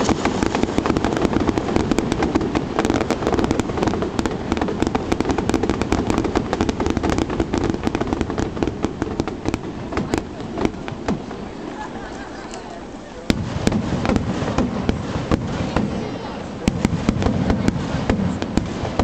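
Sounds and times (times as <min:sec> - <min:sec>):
fireworks crackling and popping: 0:00.0 - 0:19.0.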